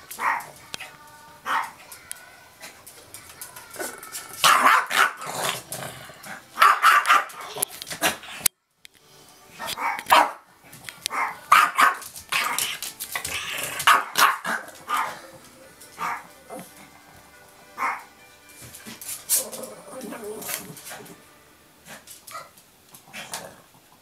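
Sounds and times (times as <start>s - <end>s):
dog barking: 4.4s - 5.3s, 6.6s - 7.4s, 9.8s - 10.4s, 11.1s - 12.0s, 13.8s - 15.2s, 17.8s - 18.0s
dog growling: 5.2s - 6.5s, 19.3s - 21.2s, 23.0s - 23.8s.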